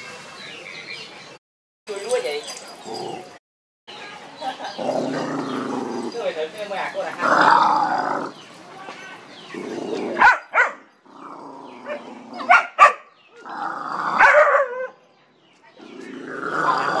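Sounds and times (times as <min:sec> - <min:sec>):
dogs growling: 0:02.7 - 0:03.4, 0:04.6 - 0:08.4, 0:09.4 - 0:12.7, 0:13.4 - 0:14.9, 0:15.8 - 0:17.0
dogs barking sharply: 0:10.0 - 0:10.9, 0:11.8 - 0:13.2, 0:14.1 - 0:15.0.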